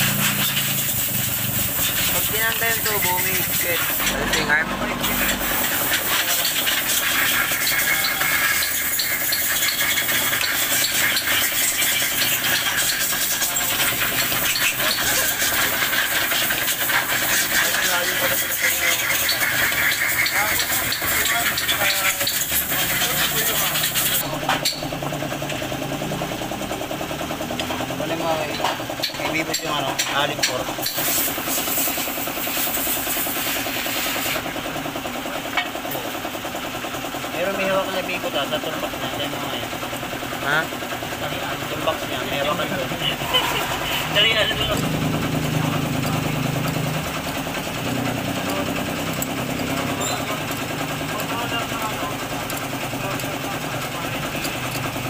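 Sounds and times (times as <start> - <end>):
engine running: 0.0 - 55.0
fast even ticking: 44.0 - 55.0.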